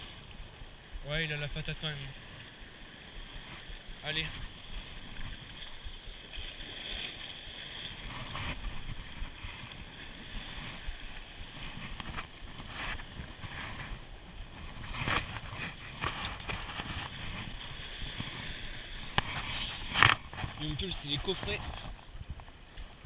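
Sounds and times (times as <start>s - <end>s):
wind buffeting microphone: 7.7s - 23.0s.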